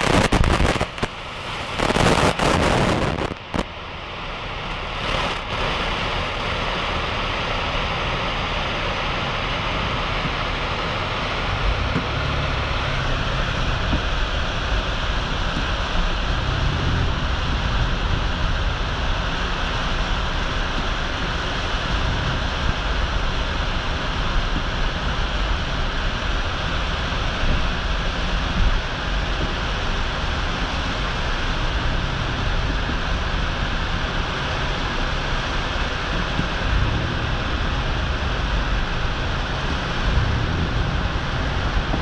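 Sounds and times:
water rushing and falling: 0.0 - 42.0
wind rumble on microphone: 0.0 - 42.0.

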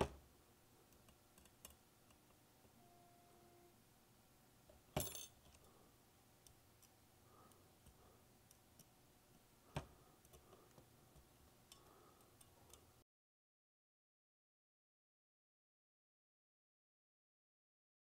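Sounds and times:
small metal screws clicking: 0.9 - 2.4.

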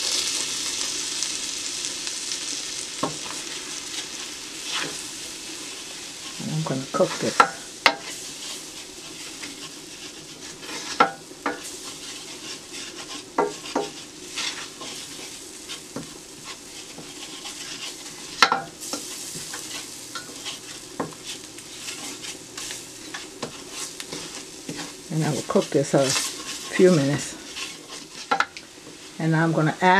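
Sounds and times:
low sizzle: 0.0 - 29.9
wooden spoon scraping a pot: 3.0 - 29.4
spoon knocking against pan: 7.0 - 8.1, 13.4 - 14.0, 18.4 - 18.7, 28.3 - 28.6.

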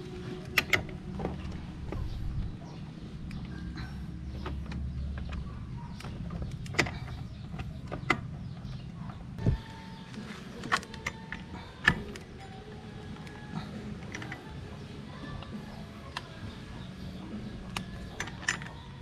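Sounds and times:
metallic clicks and knocks: 4.3 - 8.8, 17.5 - 19.0.

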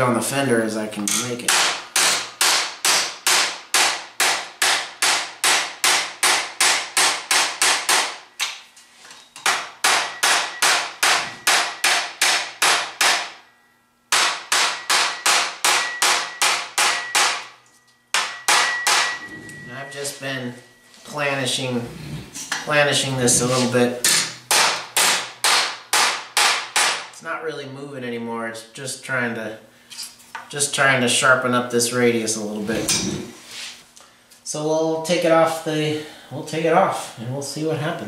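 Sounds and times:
hammer striking sheet steel: 1.1 - 8.6, 9.4 - 13.5, 14.1 - 19.3, 23.5 - 27.1.

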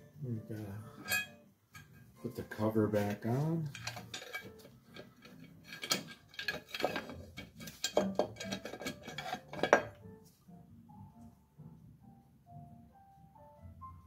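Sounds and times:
soft music: 0.0 - 14.0
metal clinks and knocks: 1.0 - 2.0, 3.6 - 10.1.

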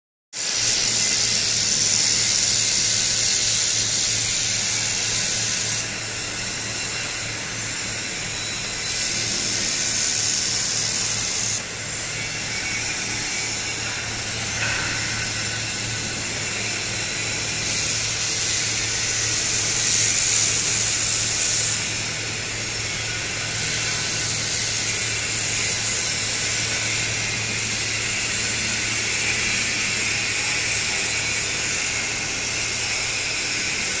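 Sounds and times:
laser welder hissing sizzle: 0.4 - 34.0.

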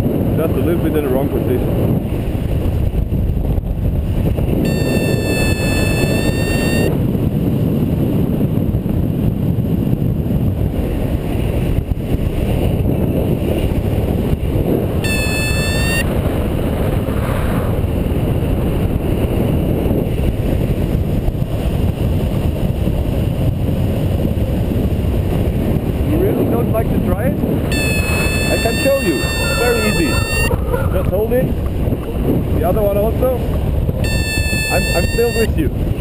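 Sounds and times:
wind buffeting microphone: 0.0 - 36.0
high electronic tone: 4.7 - 6.9, 15.0 - 16.1, 27.7 - 30.6, 34.0 - 35.6.

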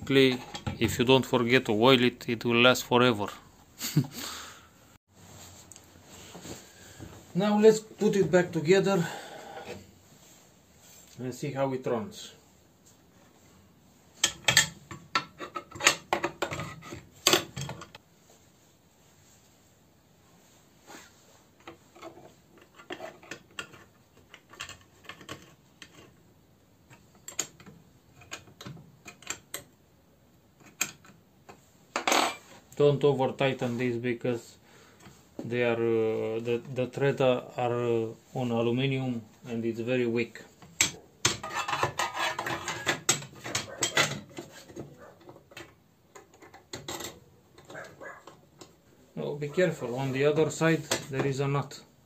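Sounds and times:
cover scraping and rubbing: 41.3 - 48.4.

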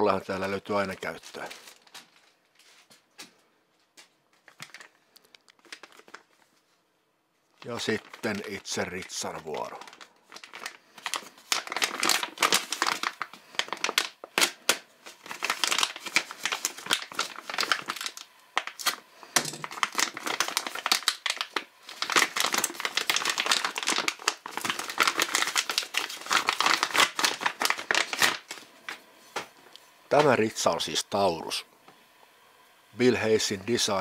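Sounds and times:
plastic bag crinkling: 0.7 - 2.6, 4.3 - 6.8, 7.4 - 29.0.

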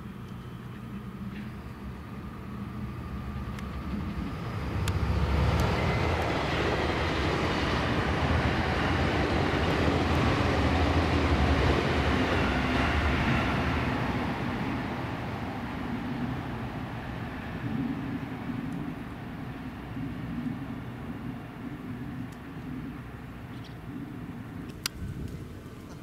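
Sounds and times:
passing vehicle low hum: 0.0 - 26.0.

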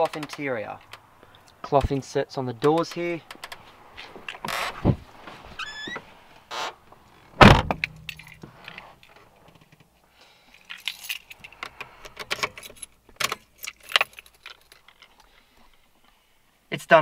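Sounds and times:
car door shutting: 5.8 - 7.9
keys jangling and clicking: 7.9 - 9.2, 10.5 - 15.3.

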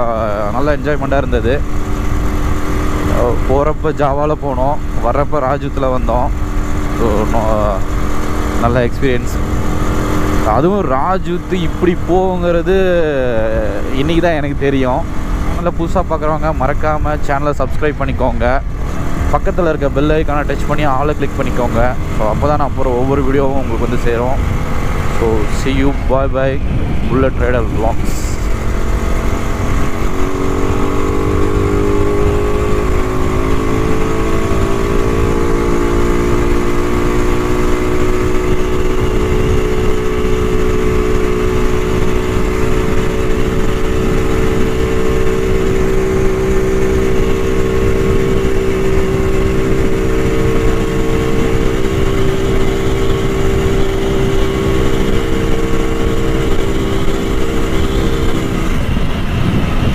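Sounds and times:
two-stroke motorcycle engine running: 0.0 - 59.9
wind rumble on microphone: 21.7 - 59.9.

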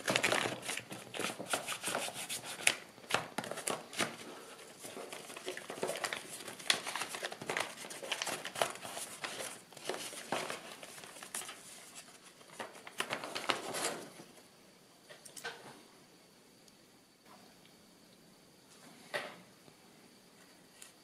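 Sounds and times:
crisp paper crease clicks: 0.0 - 14.0
paper rustling and crinkling: 0.0 - 14.3.

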